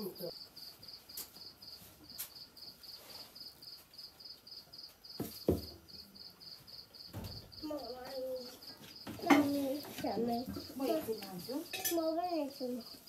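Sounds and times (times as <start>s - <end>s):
cricket chirping: 0.0s - 13.0s
knock: 5.2s - 5.8s.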